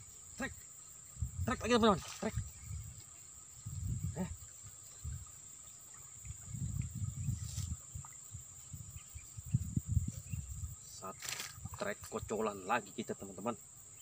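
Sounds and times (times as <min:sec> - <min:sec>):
insects shrilling: 0:00.0 - 0:14.0.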